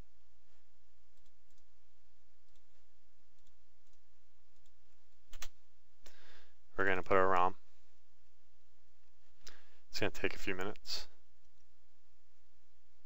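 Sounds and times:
computer mouse clicks: 1.2s - 1.7s, 3.4s - 6.2s.

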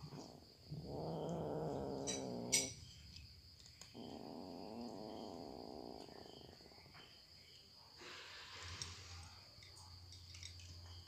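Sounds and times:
cat purring: 0.0s - 2.8s, 3.8s - 7.2s.

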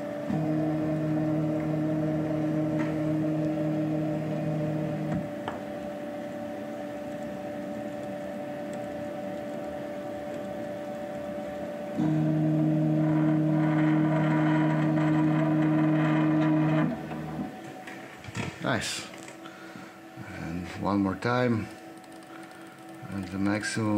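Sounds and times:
stepper motors whining: 0.0s - 17.6s
quiet machine hum: 0.0s - 23.9s.

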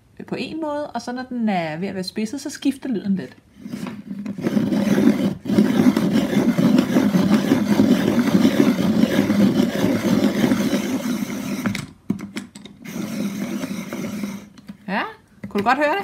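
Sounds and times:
pencil sharpener grinding: 3.6s - 11.9s, 12.8s - 14.7s.

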